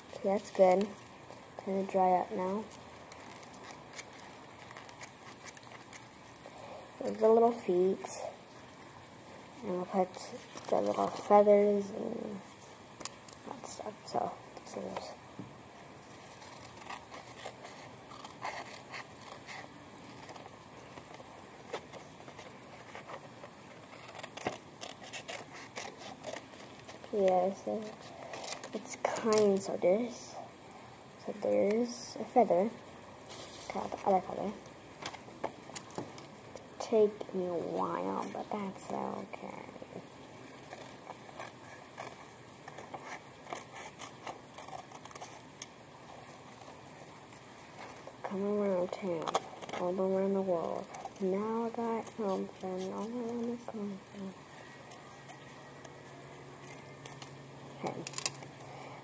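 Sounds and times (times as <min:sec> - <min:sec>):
paper rustling: 0:00.2 - 0:08.2, 0:16.0 - 0:29.7, 0:33.3 - 0:36.6, 0:40.4 - 0:59.0
scissors snipping paper: 0:01.6 - 0:06.1, 0:16.2 - 0:29.8, 0:40.4 - 0:45.7, 0:56.6 - 0:58.5.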